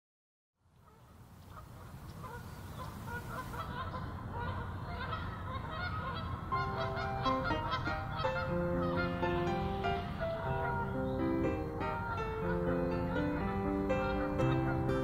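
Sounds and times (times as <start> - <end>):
geese honking: 0.8 - 15.0
music with long held notes: 6.5 - 15.0.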